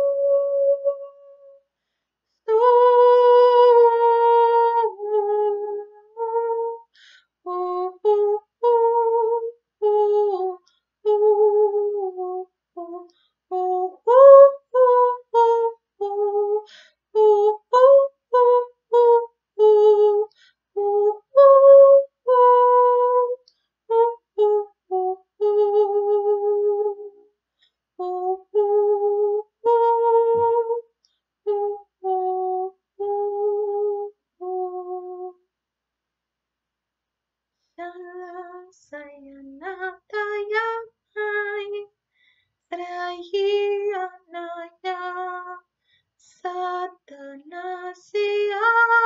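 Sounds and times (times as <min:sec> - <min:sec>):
woman singing wordless tones: 0:00.0 - 0:01.6, 0:02.5 - 0:06.9, 0:07.5 - 0:27.2, 0:28.0 - 0:35.4, 0:37.8 - 0:42.0, 0:42.7 - 0:45.6, 0:46.2 - 0:49.0.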